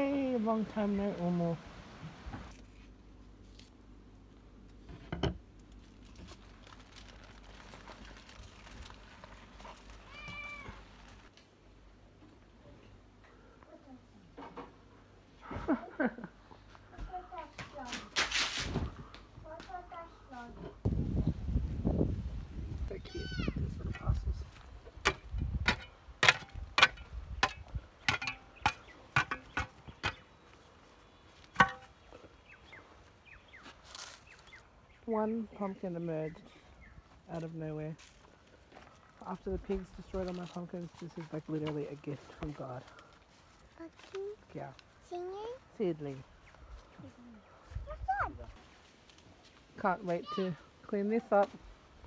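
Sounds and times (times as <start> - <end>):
leaves and foil crinkling: 2.5 - 4.8, 5.5 - 11.4, 33.6 - 34.7, 37.3 - 45.5.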